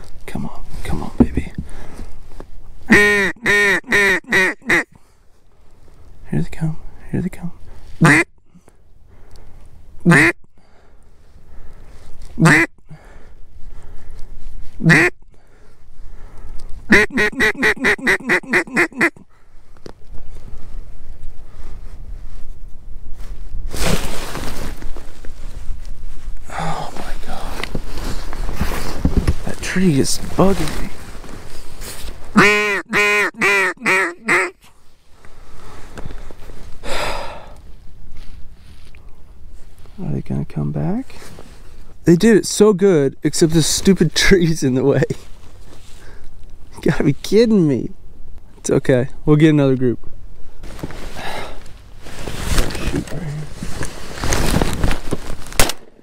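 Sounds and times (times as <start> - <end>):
duck call quacks: 2.9 - 4.9, 8.0 - 8.3, 10.0 - 10.4, 12.4 - 12.7, 14.8 - 15.2, 16.9 - 19.2, 32.3 - 34.6.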